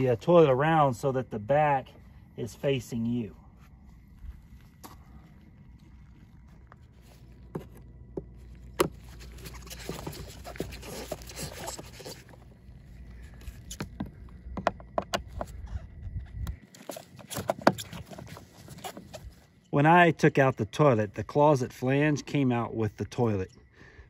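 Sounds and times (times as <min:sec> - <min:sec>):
rustling: 0:03.2 - 0:14.6, 0:15.2 - 0:19.8.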